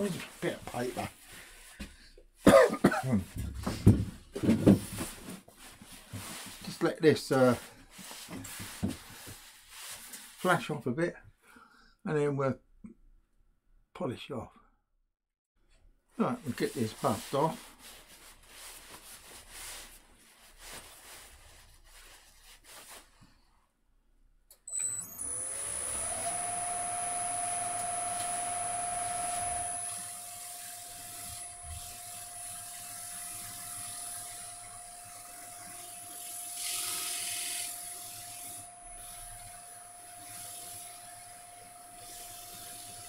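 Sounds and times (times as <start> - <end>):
wood lathe motor whine: 24.7 - 43.0
wax buffing hiss: 25.5 - 39.5, 40.2 - 41.3, 41.9 - 43.0.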